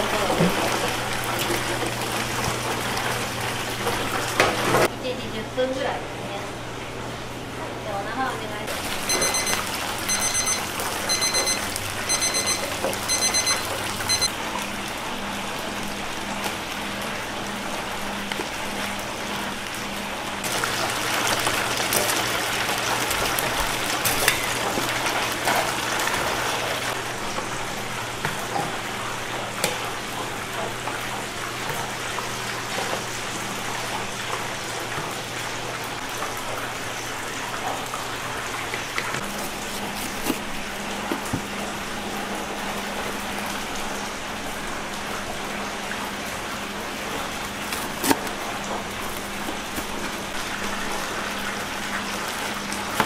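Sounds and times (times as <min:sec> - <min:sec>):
oil sizzling in deep fryer: 0:00.0 - 0:04.9, 0:08.7 - 0:53.0
high electronic beeping: 0:09.0 - 0:14.3.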